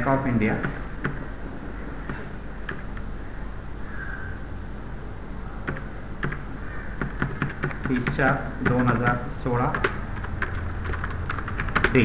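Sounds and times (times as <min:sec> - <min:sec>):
steady low hum: 0:00.0 - 0:12.0
keyboard key presses: 0:07.0 - 0:12.0.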